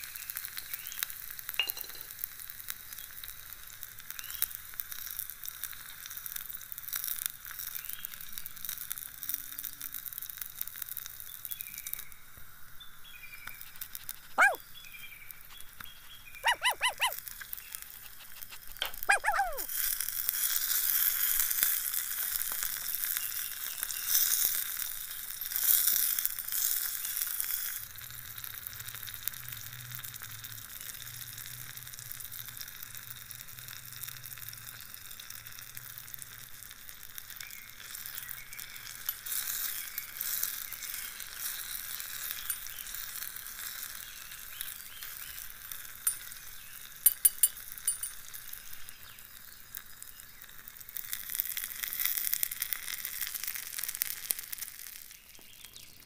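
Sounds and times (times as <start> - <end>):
tomatoes sizzling in pot: 0.0 - 56.0
spoon clinking on pot: 1.6 - 2.2, 46.1 - 46.4, 47.0 - 48.4.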